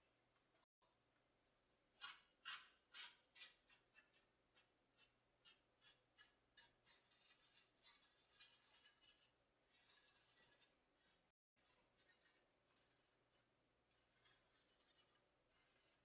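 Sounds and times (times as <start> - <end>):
paint brush scratchy dabs: 2.0 - 16.0.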